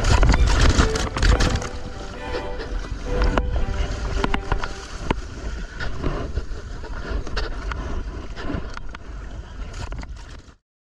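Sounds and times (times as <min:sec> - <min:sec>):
water washing around kayak: 0:00.0 - 0:10.3
wind buffeting microphone: 0:00.0 - 0:10.3.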